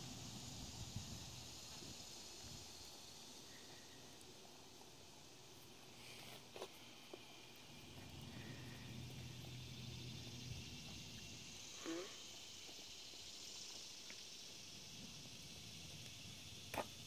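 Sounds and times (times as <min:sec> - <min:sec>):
high-pitched insect chorus: 0:00.0 - 0:17.0.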